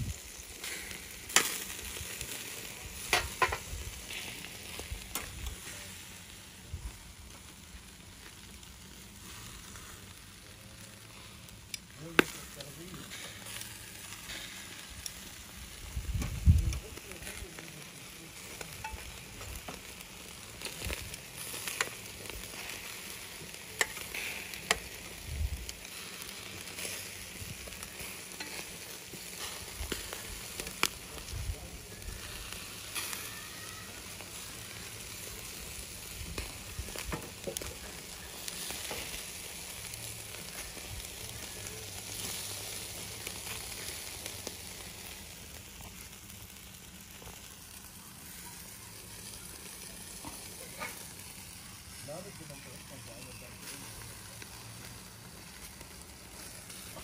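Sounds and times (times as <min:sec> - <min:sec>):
food sizzling in hot oil: 0:00.0 - 0:57.0.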